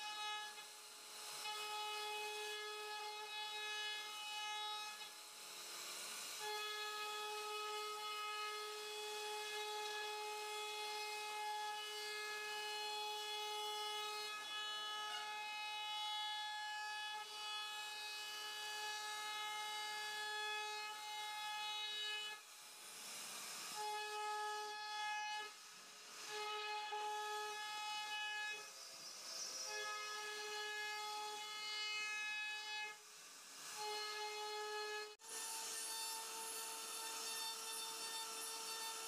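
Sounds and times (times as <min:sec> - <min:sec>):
router spindle whine: 0:00.0 - 0:39.0
bit cutting wood hiss: 0:20.8 - 0:39.0.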